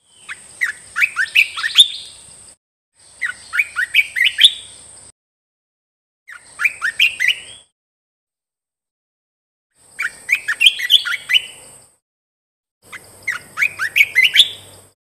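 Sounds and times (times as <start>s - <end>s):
bird singing bubbly phrases: 0.0s - 2.2s, 3.1s - 4.7s, 6.3s - 7.7s, 10.0s - 11.6s, 13.2s - 15.0s.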